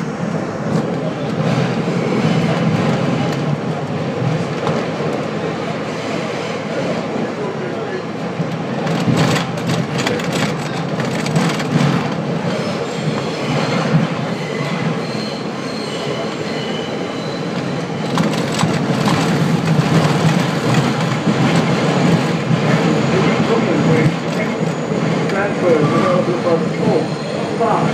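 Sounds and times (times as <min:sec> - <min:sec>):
subway train rumbling in tunnel: 0:00.0 - 0:27.9
high wheel squeal: 0:12.5 - 0:18.4, 0:26.8 - 0:27.5.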